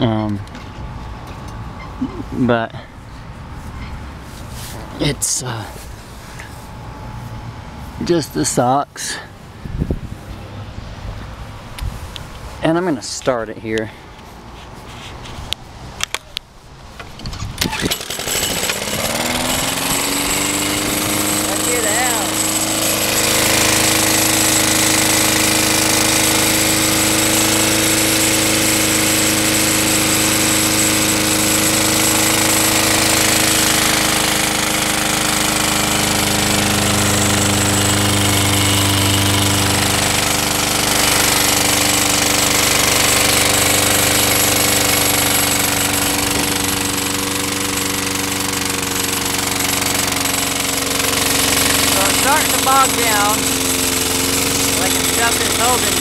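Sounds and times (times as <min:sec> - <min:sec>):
lawn mower engine running: 0:17.0 - 0:56.0.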